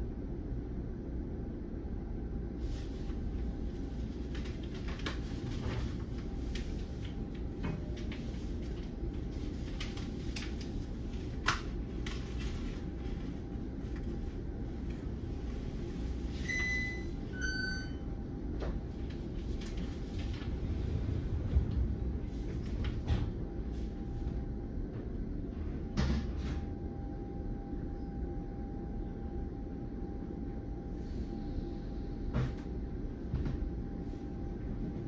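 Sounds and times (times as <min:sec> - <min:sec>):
rail car equipment rumble: 0:19.1 - 0:24.1.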